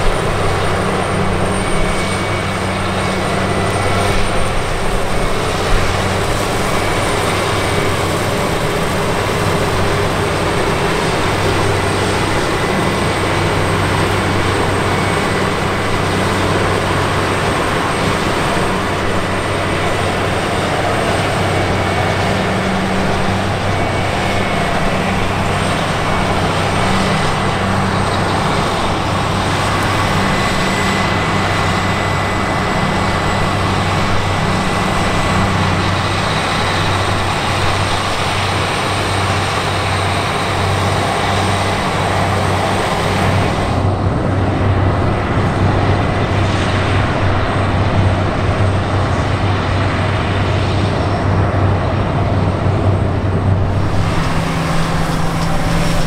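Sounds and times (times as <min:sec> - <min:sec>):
combine harvester engine drone: 0:00.0 - 0:56.0
mechanical rush: 0:00.0 - 0:56.0
thin high whines: 0:53.4 - 0:56.0.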